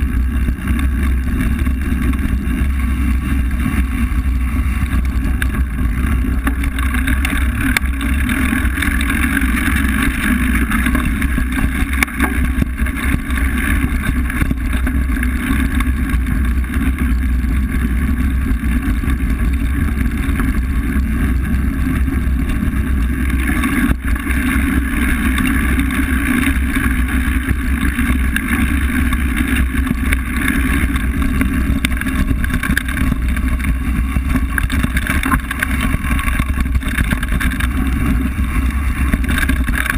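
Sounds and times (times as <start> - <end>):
bike clicks and rattles: 0.0 - 39.9
tyres on gravel: 0.0 - 39.9
wind rush on camera: 0.0 - 39.9.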